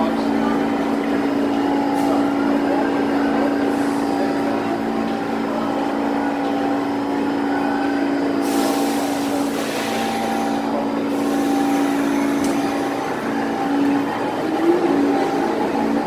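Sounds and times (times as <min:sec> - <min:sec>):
loud hiss of air: 0:08.4 - 0:10.5.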